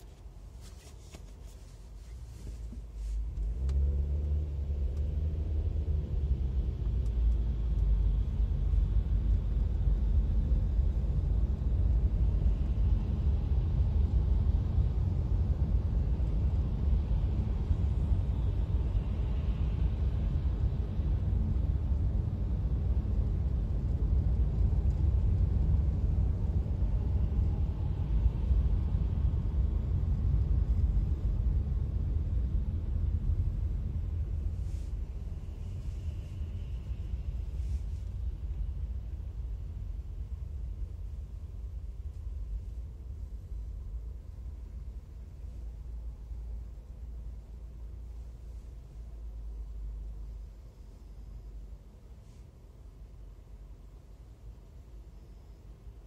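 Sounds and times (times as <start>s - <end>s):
car engine rumble: 0.0s - 56.0s
tyres on the road: 0.0s - 56.0s.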